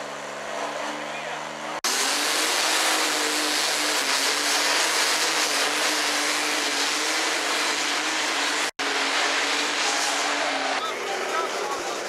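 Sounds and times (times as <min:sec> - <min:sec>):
tractor engine running flat out: 0:09.8 - 0:12.0.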